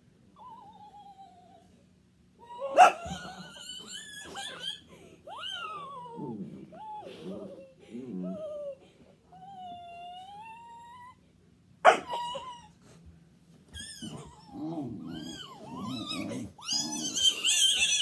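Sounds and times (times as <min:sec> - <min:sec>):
dog whining: 0:00.4 - 0:01.8, 0:02.4 - 0:13.0, 0:13.7 - 0:18.0
dog barking: 0:02.8 - 0:03.0, 0:11.8 - 0:12.2.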